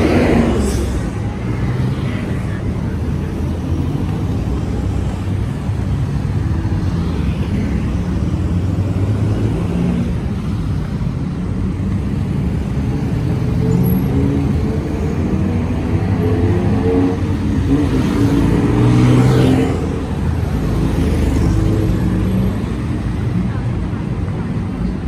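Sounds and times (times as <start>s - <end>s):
vehicle engines rumbling: 0.0s - 25.0s.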